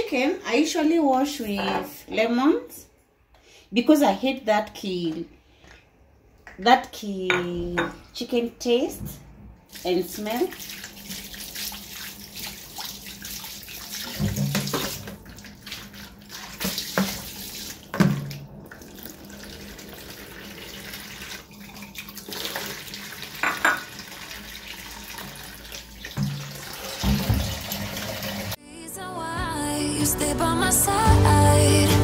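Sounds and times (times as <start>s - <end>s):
tap running into steel sink: 26.1s - 28.0s
plastic basin knocks: 27.0s - 27.7s.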